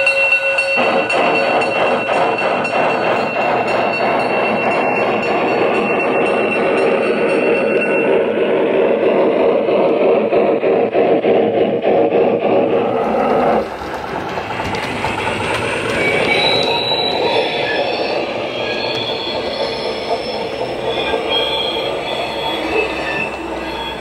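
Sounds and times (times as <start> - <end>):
steady train running sound: 0.0 - 24.0
high-pitched wheel squeals: 15.1 - 24.0.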